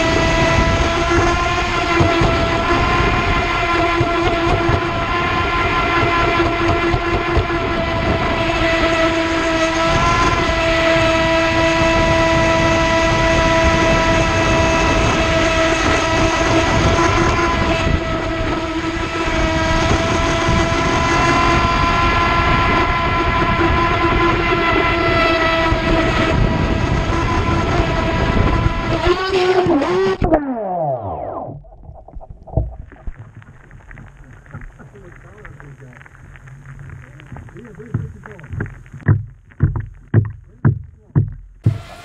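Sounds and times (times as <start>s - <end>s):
electric motor whine: 0.0s - 31.7s, 41.6s - 42.0s
rough water rush: 24.0s - 42.0s.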